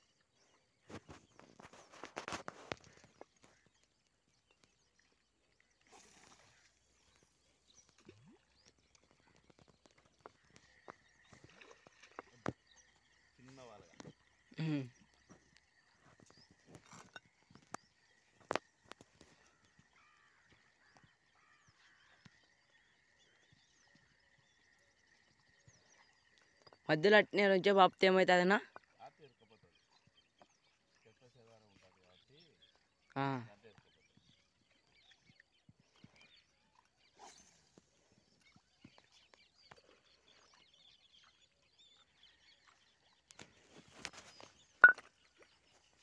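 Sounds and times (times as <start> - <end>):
faint bird chirps: 0.0 - 27.0.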